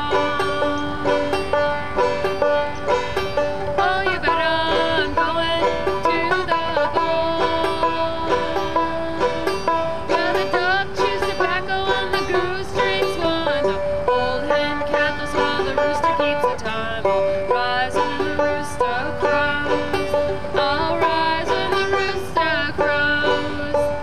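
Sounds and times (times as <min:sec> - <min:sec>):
banjo picking: 0:00.0 - 0:24.0.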